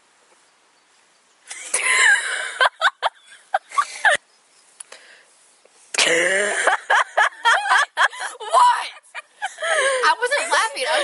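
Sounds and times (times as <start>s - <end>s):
girls laughing: 1.5s - 4.2s, 6.6s - 11.0s.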